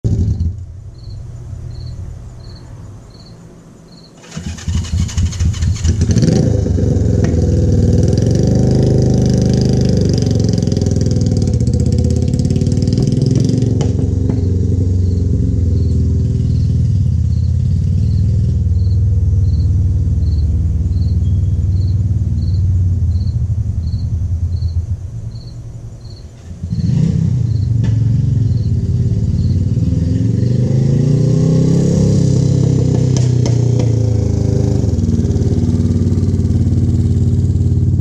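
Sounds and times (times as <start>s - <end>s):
motorcycle engine kickstarted and running: 4.2s - 25.5s, 32.1s - 38.0s
low rumble: 13.8s - 30.2s.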